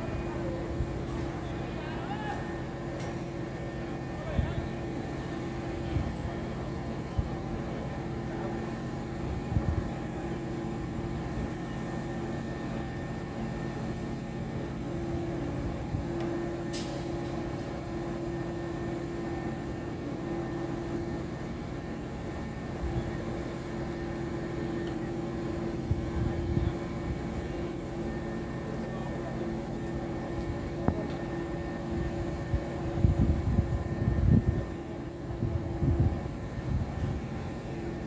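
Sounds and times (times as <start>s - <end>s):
heavy construction machinery droning: 0.0s - 38.0s
wind gusts on microphone: 32.4s - 34.7s, 35.3s - 37.2s.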